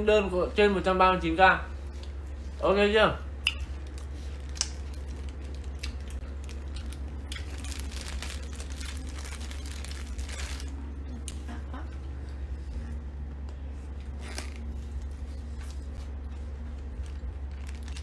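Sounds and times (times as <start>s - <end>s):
steady low hum: 0.0s - 18.0s
plastic packaging crinkling: 3.7s - 10.9s, 16.8s - 18.0s.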